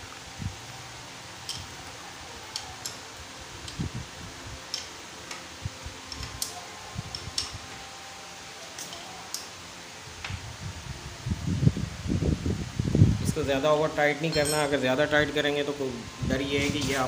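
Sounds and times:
light metal clicks: 4.7 - 7.6, 8.7 - 9.5.

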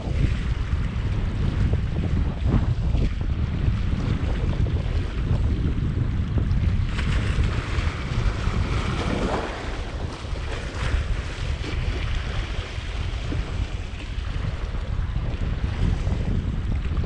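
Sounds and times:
wind buffeting microphone: 0.0 - 17.0
waves splashing against rocks: 6.6 - 16.1.

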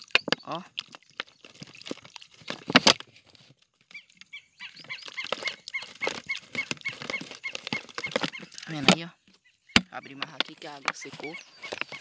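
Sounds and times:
animal calling: 3.9 - 12.0.

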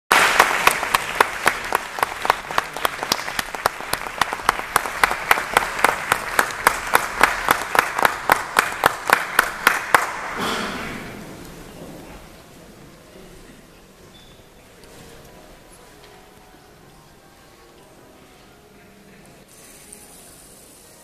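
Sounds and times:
close hand clapping: 0.1 - 10.5
audience applauding: 0.1 - 11.2.

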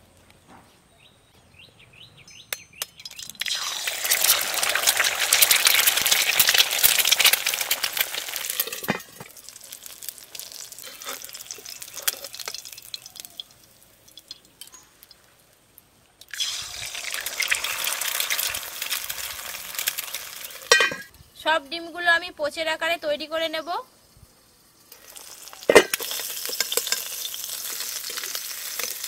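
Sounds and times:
egg sizzling in hot oil: 2.9 - 21.1, 23.7 - 29.0
metal spatula taps and scrapes: 20.7 - 21.1, 25.7 - 27.2.

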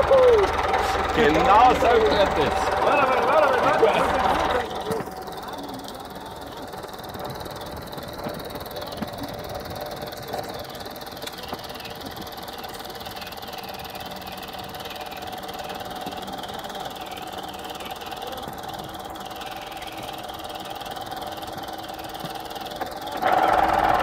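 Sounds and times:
tractor engine idling: 0.0 - 24.0.

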